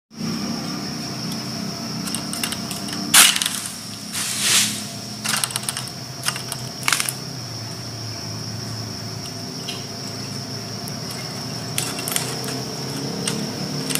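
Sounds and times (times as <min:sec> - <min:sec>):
blade cracking through stalk: 0:02.1 - 0:07.1.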